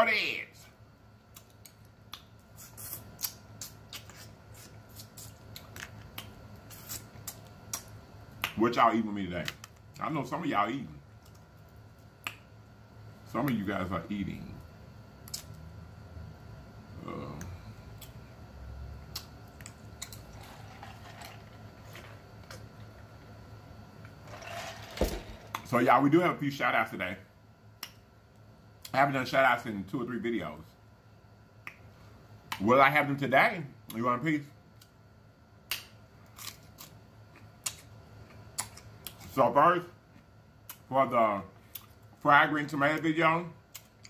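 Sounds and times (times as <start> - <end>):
mouth sounds: 17.0 - 17.8.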